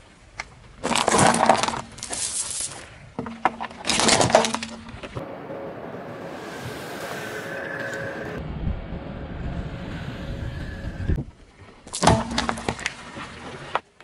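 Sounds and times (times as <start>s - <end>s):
tyre crushing beads and plastic: 0.8s - 2.8s, 3.5s - 4.8s.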